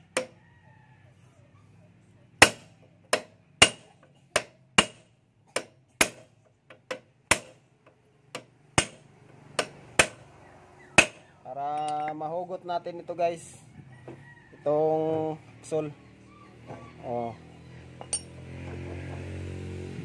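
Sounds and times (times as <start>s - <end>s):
hammer striking steel punch: 2.4s - 6.3s, 6.9s - 7.6s, 8.4s - 9.0s, 9.6s - 10.2s, 11.0s - 11.2s.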